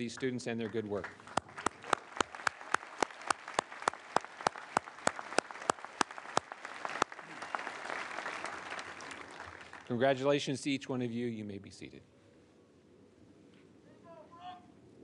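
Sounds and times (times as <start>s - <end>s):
loud even claps: 0.0s - 10.0s
crowd applause: 0.0s - 10.2s.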